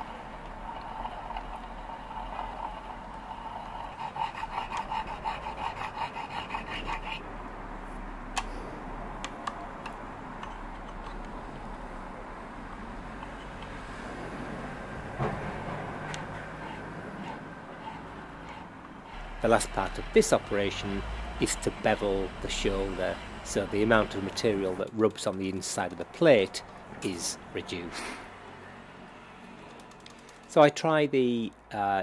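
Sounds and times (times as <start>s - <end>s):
small lathe running: 0.0s - 7.2s, 12.6s - 27.8s
stone rubbing on spinning steel: 0.1s - 7.2s, 16.0s - 24.8s.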